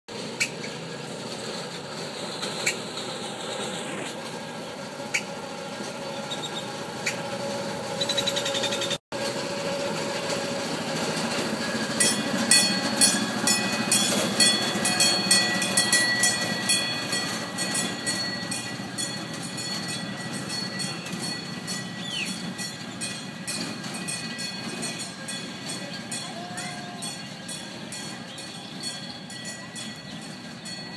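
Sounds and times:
road train motor rumbling: 0:00.1 - 0:30.9
rapid repeated ringing: 0:12.0 - 0:30.9.

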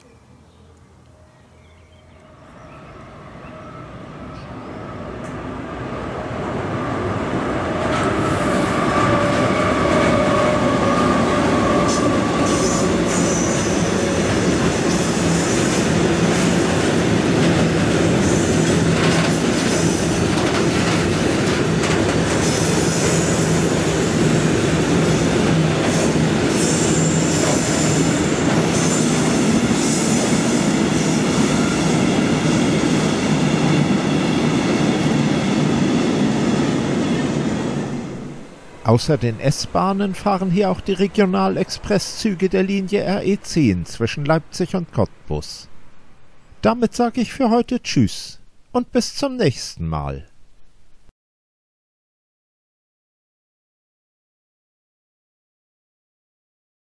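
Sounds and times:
train wheels rumbling on rails: 0:05.1 - 0:38.5.

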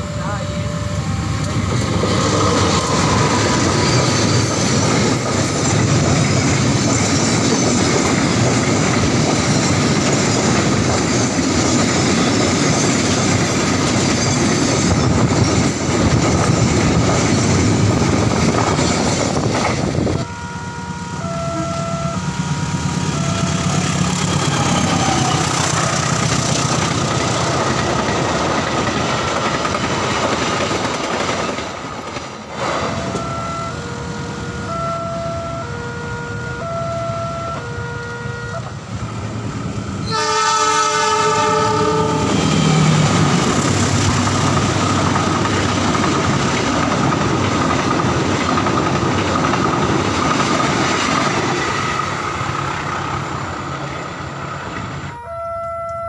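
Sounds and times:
short warning tones: 0:00.0 - 0:01.7, 0:20.1 - 0:25.5, 0:32.9 - 0:38.7, 0:55.1 - 0:56.0
freight train rumbling past: 0:00.0 - 0:56.0
quieter passing train: 0:00.0 - 0:56.0
wheels clattering over rail joints: 0:01.6 - 0:20.0, 0:25.6 - 0:33.1, 0:43.0 - 0:53.4.

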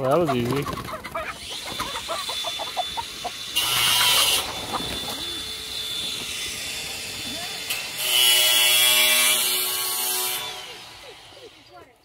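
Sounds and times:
hens clucking: 0:00.0 - 0:08.0.

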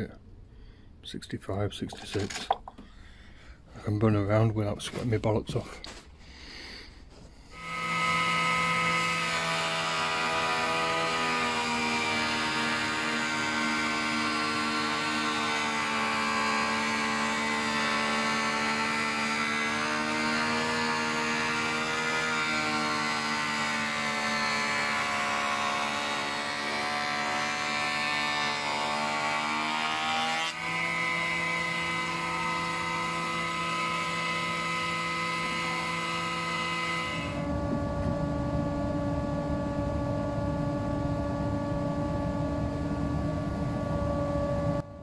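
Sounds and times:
jointer machine hum: 0:01.9 - 0:45.0
low rumble: 0:37.4 - 0:45.0.

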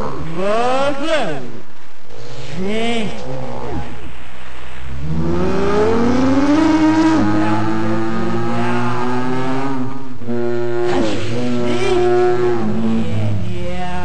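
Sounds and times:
sustained drone tones: 0:00.0 - 0:14.0.

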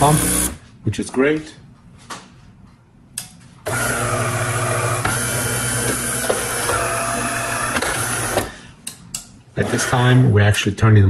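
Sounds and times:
water pump buzzing: 0:00.0 - 0:00.6, 0:03.7 - 0:08.5.

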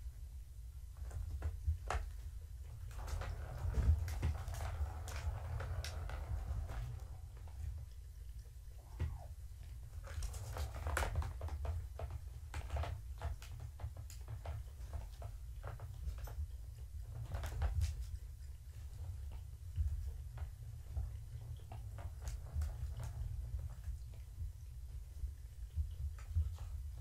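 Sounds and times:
low hum: 0:02.6 - 0:10.5.

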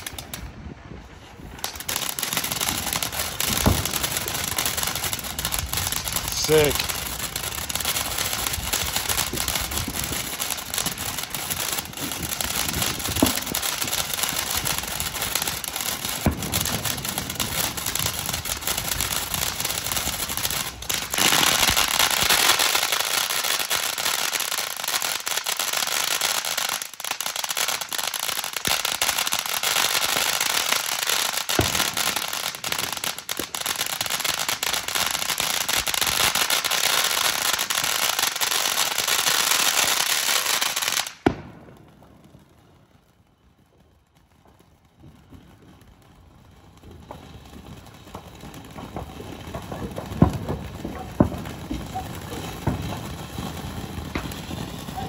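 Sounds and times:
firework fountain hissing: 0:00.0 - 0:41.4, 0:46.6 - 0:55.0
firework pops: 0:03.4 - 0:04.1, 0:12.0 - 0:13.9, 0:16.2 - 0:17.0, 0:31.5 - 0:32.2, 0:41.1 - 0:41.8, 0:46.8 - 0:55.0.

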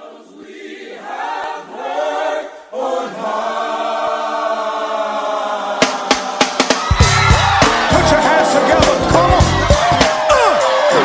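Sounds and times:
choir singing long held notes: 0:00.0 - 0:11.0
drum hits: 0:05.8 - 0:10.6.

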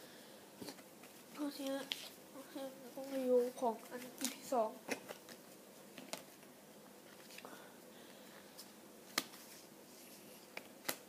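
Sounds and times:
cards handled with soft clicks: 0:09.1 - 0:09.6.

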